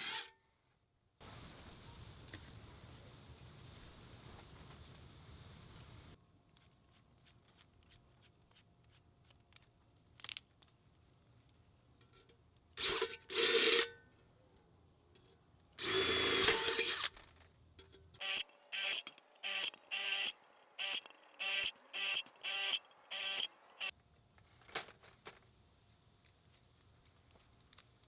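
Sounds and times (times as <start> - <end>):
power drill boring metal: 0.0 - 0.3, 15.8 - 17.1, 18.2 - 23.9.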